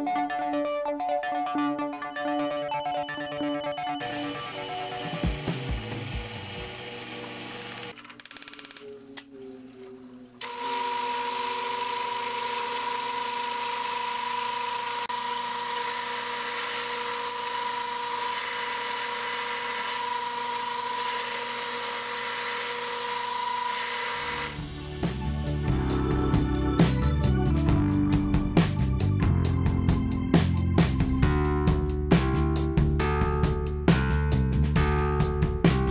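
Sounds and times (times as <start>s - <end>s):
milling machine cutting metal: 4.0s - 8.0s, 10.4s - 24.6s.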